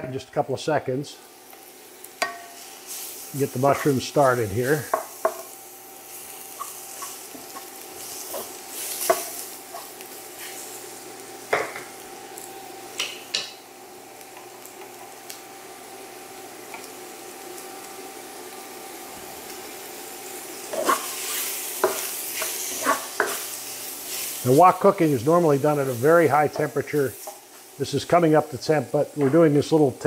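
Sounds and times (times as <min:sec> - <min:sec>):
food sizzling in oil: 0:00.6 - 0:30.0
induction burner whine: 0:00.9 - 0:26.6
spatula scraping and knocking pan: 0:04.9 - 0:05.5, 0:06.5 - 0:10.6, 0:20.7 - 0:23.5.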